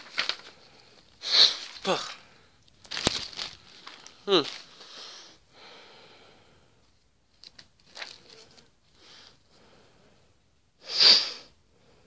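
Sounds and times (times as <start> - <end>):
plastic bag crinkling: 0.0 - 4.7, 7.3 - 8.6.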